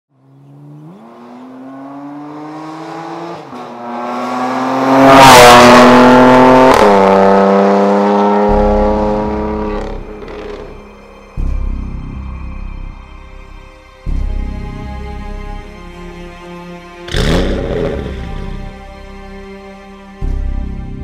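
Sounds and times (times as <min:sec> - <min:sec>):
car engine accelerating hard: 0:00.1 - 0:10.8, 0:17.1 - 0:18.9.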